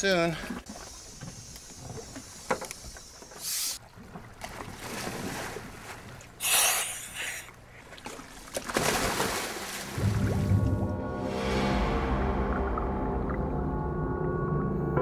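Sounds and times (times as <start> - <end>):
water splashing around boat: 0.0 - 10.9.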